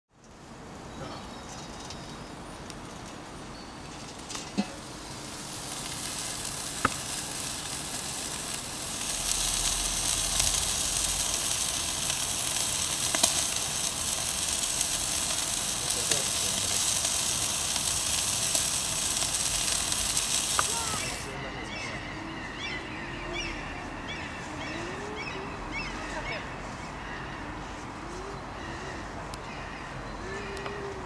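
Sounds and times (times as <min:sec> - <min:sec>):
meat sizzling on grill: 0:04.1 - 0:21.4
fat popping: 0:05.8 - 0:07.7.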